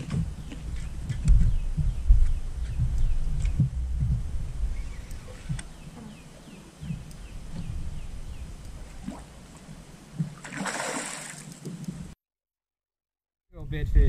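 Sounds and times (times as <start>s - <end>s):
light water sounds: 8.4s - 12.2s
fish splashing at water surface: 10.4s - 11.7s.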